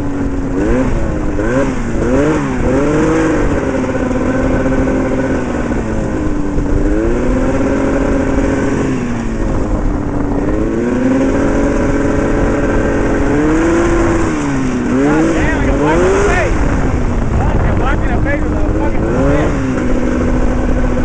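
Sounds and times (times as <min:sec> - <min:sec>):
two-stroke engine revving: 0:00.0 - 0:21.0.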